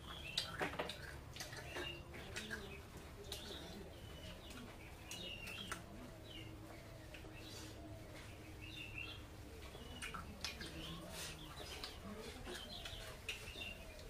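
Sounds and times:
low steady hum: 0:00.0 - 0:14.0
small birds chirping: 0:00.0 - 0:14.0
mouth clicks from chewing: 0:00.2 - 0:03.6, 0:09.8 - 0:11.0.

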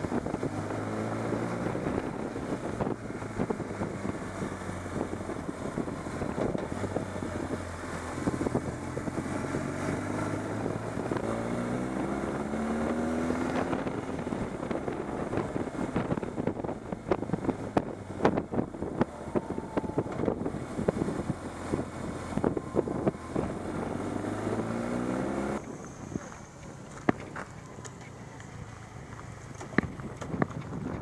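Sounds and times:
motorcycle engine running: 0:00.0 - 0:24.8
wind buffeting microphone: 0:00.0 - 0:24.8, 0:29.6 - 0:31.0.

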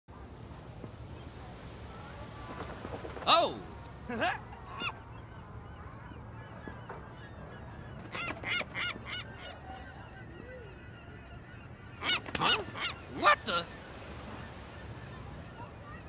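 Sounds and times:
seagull squawks: 0:04.1 - 0:16.0.

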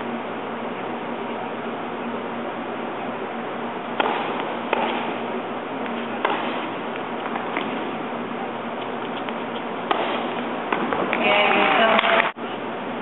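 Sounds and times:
steady background hiss: 0:00.0 - 0:13.0
tennis ball struck by rackets: 0:04.0 - 0:11.6
tennis ball bouncing on court: 0:04.0 - 0:12.2.

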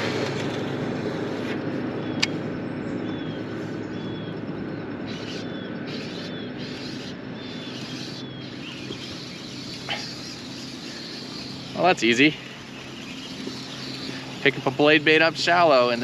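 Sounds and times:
steady low hum: 0:00.0 - 0:16.0
sharp click: 0:02.2 - 0:02.4
fishing reel whirring: 0:05.1 - 0:16.0.

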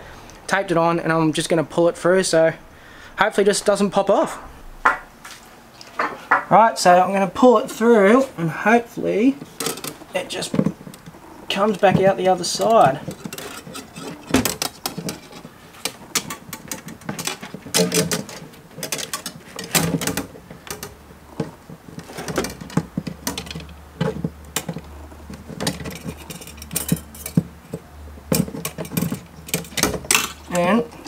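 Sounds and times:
wire and cable scraping through hole: 0:09.4 - 0:30.7.

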